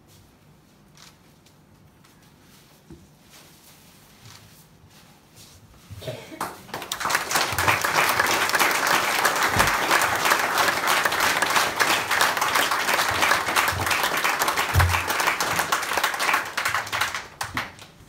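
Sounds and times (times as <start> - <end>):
audience applauding: 6.4 - 18.0.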